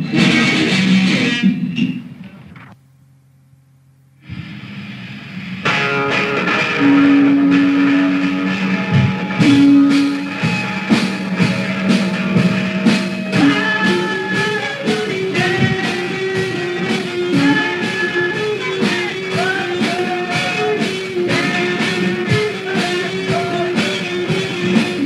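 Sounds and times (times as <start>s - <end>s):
bass guitar: 0.0s - 2.8s, 4.2s - 25.0s
electric guitar: 0.0s - 2.8s, 4.2s - 25.0s
drum hits: 7.0s - 25.0s.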